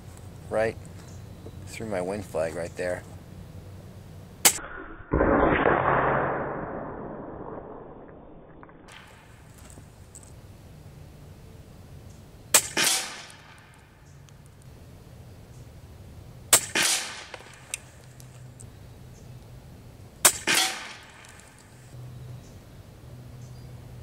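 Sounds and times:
air rifle shots: 5.2s - 7.5s, 12.5s - 13.8s, 16.5s - 17.9s, 20.2s - 21.7s
pellet striking target: 12.6s - 13.8s, 16.5s - 17.7s, 20.2s - 21.4s.

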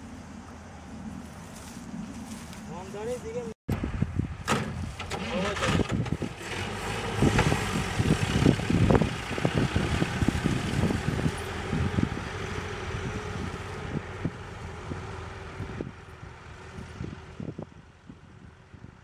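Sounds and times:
car engine driving off: 4.4s - 17.7s.

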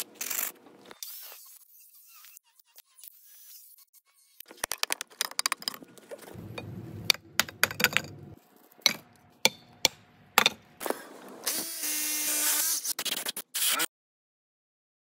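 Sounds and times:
low rumble: 6.4s - 8.4s
concrete blocks clinking together: 6.6s - 10.6s.

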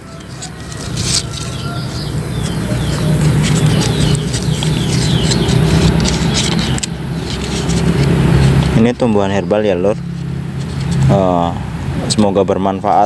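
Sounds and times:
leaves rustling and snapping: 0.0s - 9.0s
small birds chirping: 0.0s - 10.0s
vehicle engine droning: 0.0s - 13.0s.

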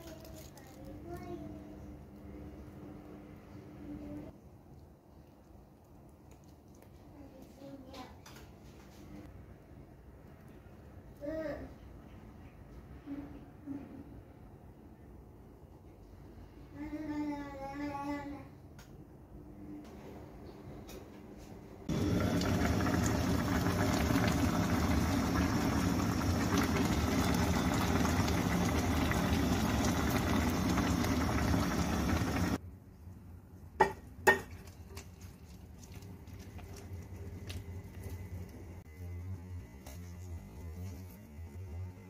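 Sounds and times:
pot boiling hard: 21.9s - 32.6s.

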